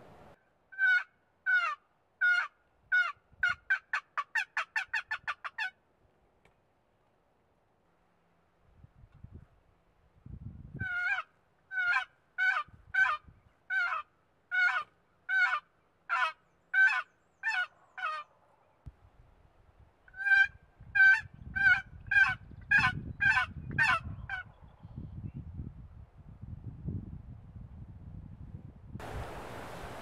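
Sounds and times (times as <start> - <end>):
honking yelping bird calls: 10.8 - 18.3.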